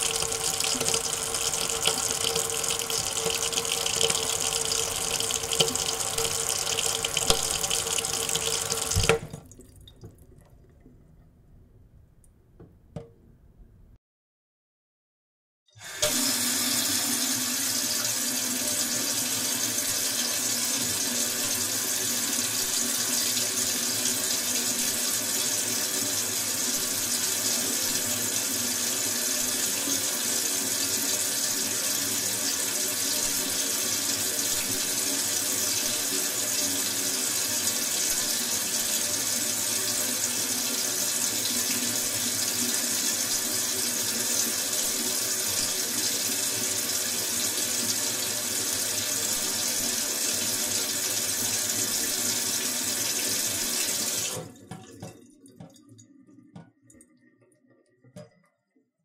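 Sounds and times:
tap water splashing into sink: 0.0s - 11.3s, 53.4s - 55.9s.

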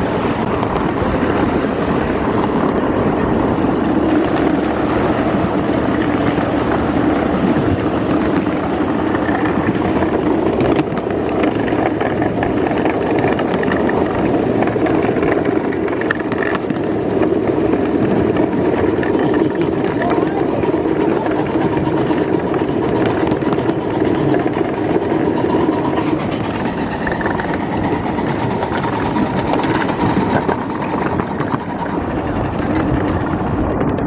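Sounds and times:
miniature train rolling on track: 0.0s - 34.0s.

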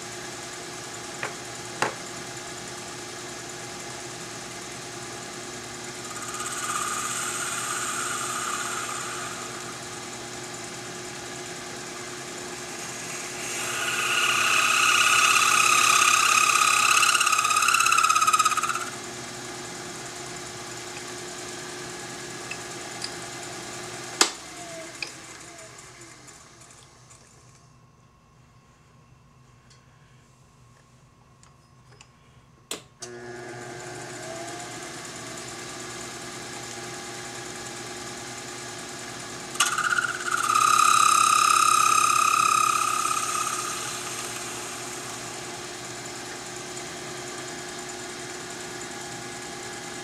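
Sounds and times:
lathe running: 4.0s - 19.1s, 33.3s - 50.0s
motor winding down: 4.5s - 19.1s, 38.7s - 50.0s
high-pitched cutting sound: 6.0s - 10.1s, 12.3s - 19.0s, 39.6s - 45.3s.

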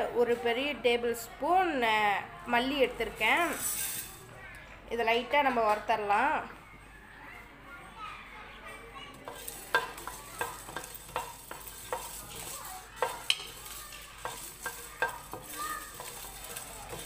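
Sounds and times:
high hiss of roasting: 9.3s - 17.0s
wooden spatula knocking on pan: 9.3s - 17.0s.

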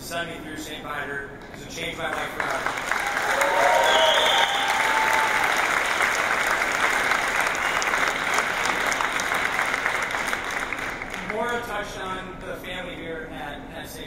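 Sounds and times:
audience applauding: 2.0s - 11.6s.

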